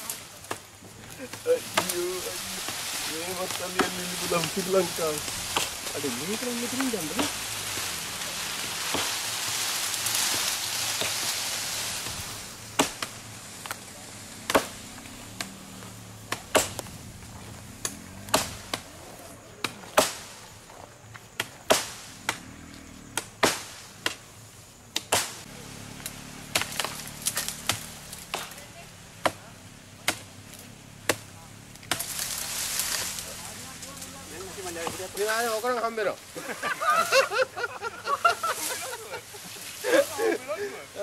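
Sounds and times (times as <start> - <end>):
leafy branches rustling: 0.0 - 41.0
blade chopping wood: 0.4 - 8.0, 8.8 - 9.2, 12.0 - 13.8, 14.4 - 15.6, 16.3 - 16.9, 17.8 - 18.9, 19.6 - 20.3, 21.4 - 22.5, 23.1 - 24.2, 24.9 - 30.3, 31.0 - 33.2.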